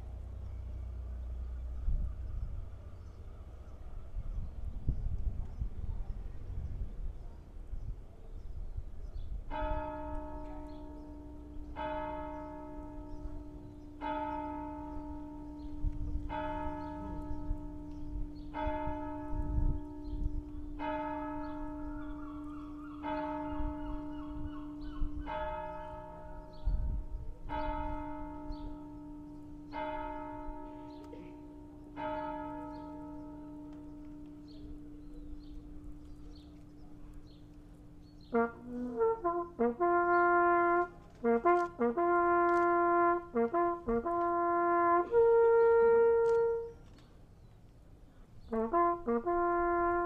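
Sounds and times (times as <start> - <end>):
church bell striking: 9.5 - 46.7.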